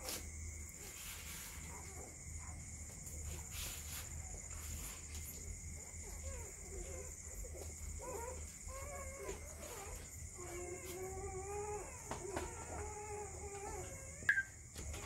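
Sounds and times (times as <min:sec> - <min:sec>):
puppies whining and squealing: 0:04.5 - 0:15.0.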